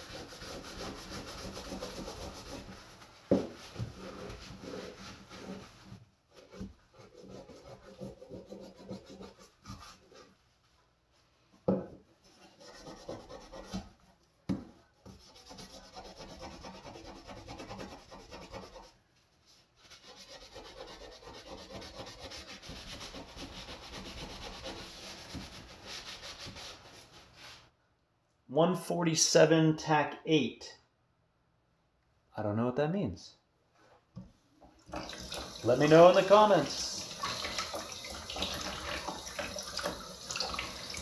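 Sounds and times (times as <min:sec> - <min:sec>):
scouring pad scrubbing a knife: 0:00.0 - 0:10.4, 0:12.2 - 0:14.0, 0:15.0 - 0:19.0, 0:19.7 - 0:27.7, 0:35.2 - 0:41.0.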